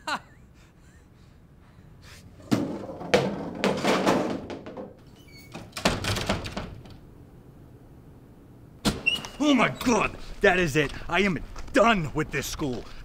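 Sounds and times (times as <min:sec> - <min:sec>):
loud knocking and thudding: 0:02.5 - 0:05.0.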